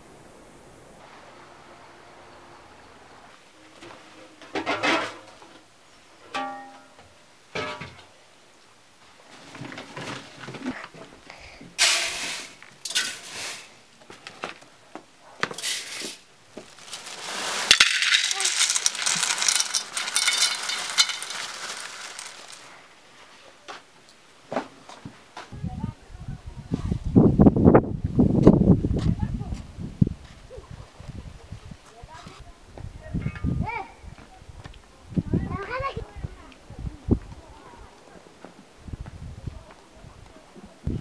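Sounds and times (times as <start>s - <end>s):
metal bowls clinking: 6.3s - 7.0s, 16.7s - 22.8s
rice pouring into metal basin: 11.8s - 13.7s, 15.6s - 22.8s.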